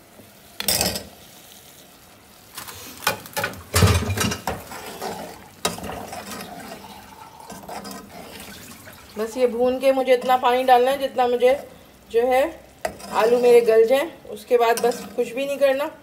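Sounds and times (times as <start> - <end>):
metal spoon scraping a pot: 4.1 - 8.7, 12.8 - 13.6, 14.7 - 15.3.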